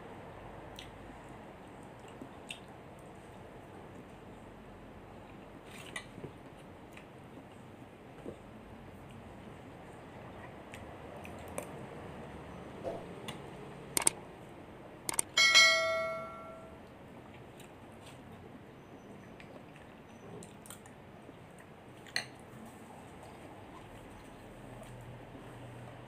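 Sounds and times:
metal spoon clinking on glass bowl: 0:15.3 - 0:16.8.

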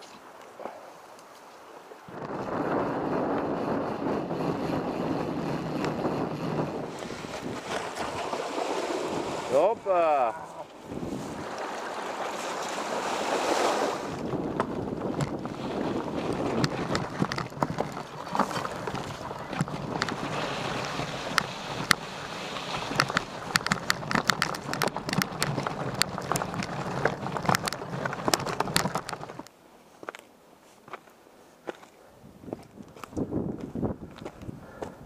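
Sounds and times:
wind rush on microphone: 0:02.1 - 0:09.9, 0:10.8 - 0:11.6, 0:13.5 - 0:29.5, 0:32.2 - 0:35.0
bike clattering over stones: 0:14.2 - 0:29.5.

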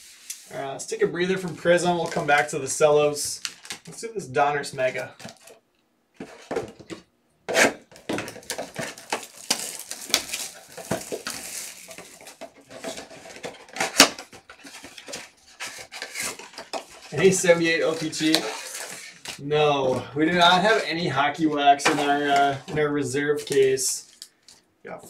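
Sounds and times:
plastic wrap crinkling and tearing: 0:03.4 - 0:04.0, 0:07.9 - 0:19.4, 0:23.4 - 0:24.6.

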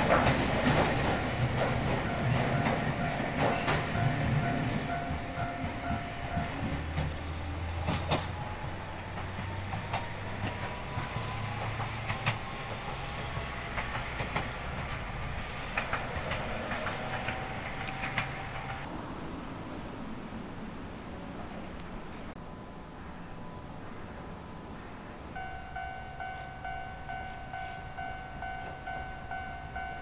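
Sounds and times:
wheels clicking over rail joints: 0:00.0 - 0:18.9
train rumble: 0:00.0 - 0:30.0.

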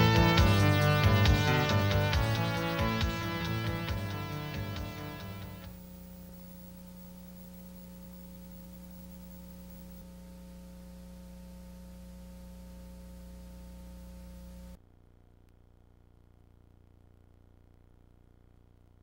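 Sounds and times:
background music: 0:00.0 - 0:05.7
electrical hum with hiss: 0:00.0 - 0:19.0.

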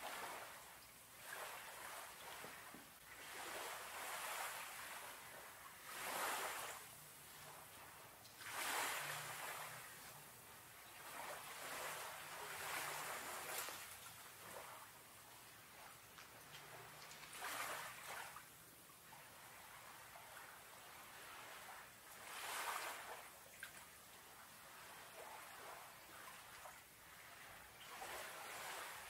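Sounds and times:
small waves washing in: 0:00.0 - 0:29.0.

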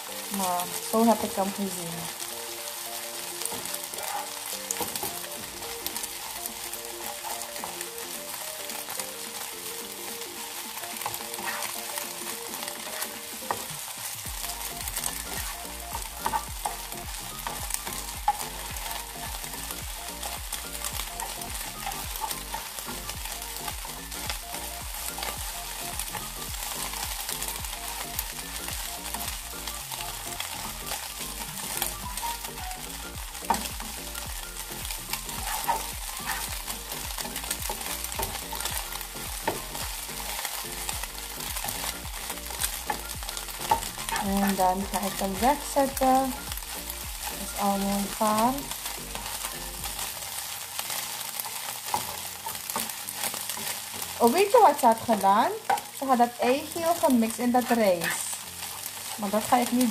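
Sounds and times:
eggs sizzling in frying pan: 0:00.0 - 0:59.9
spatula tapping and scraping pan: 0:10.5 - 0:29.4, 0:33.3 - 0:47.3, 0:55.6 - 0:56.0.

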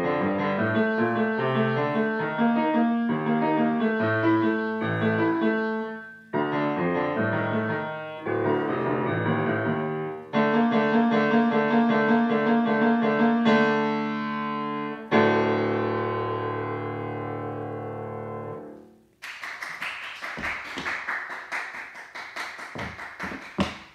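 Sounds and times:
grand piano playing: 0:00.0 - 0:19.1
hand clapping: 0:19.2 - 0:23.9.

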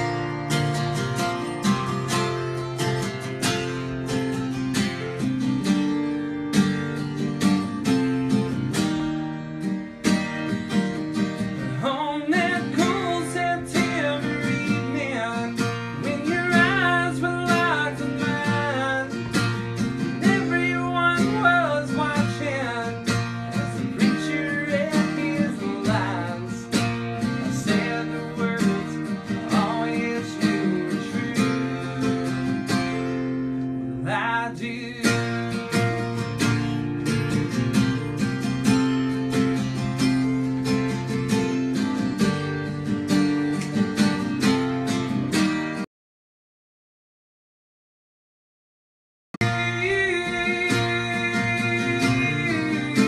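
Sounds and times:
acoustic guitar strummed: 0:00.0 - 0:45.9, 0:49.4 - 0:53.0
person singing: 0:11.6 - 0:33.0, 0:34.0 - 0:35.4, 0:49.4 - 0:53.0.

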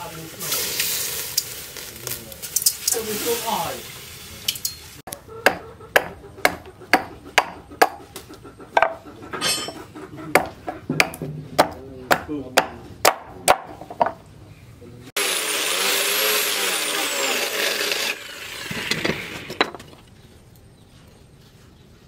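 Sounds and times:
hatchet chopping wood: 0:05.1 - 0:08.2, 0:10.4 - 0:14.1
angle grinder whining: 0:15.2 - 0:19.6.

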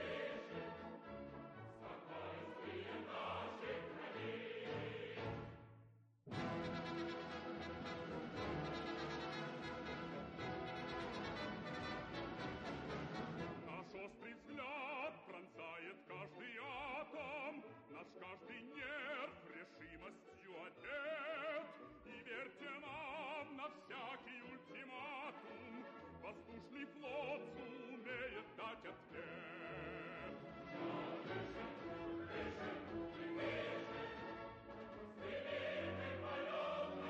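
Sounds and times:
operatic singing with vibrato: 0:00.0 - 0:05.6, 0:10.7 - 0:37.0
orchestral accompaniment: 0:06.3 - 0:14.9, 0:24.0 - 0:37.0.

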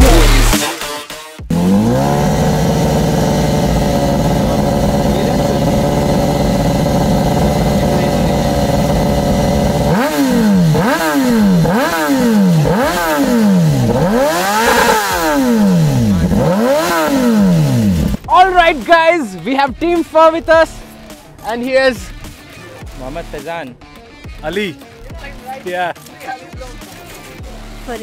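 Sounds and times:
motorcycle engine revving: 0:00.0 - 0:00.7, 0:01.5 - 0:18.3.

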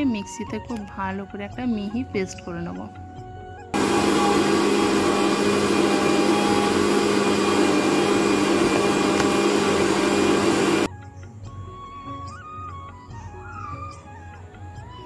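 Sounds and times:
mixer grinder running: 0:03.8 - 0:10.9.

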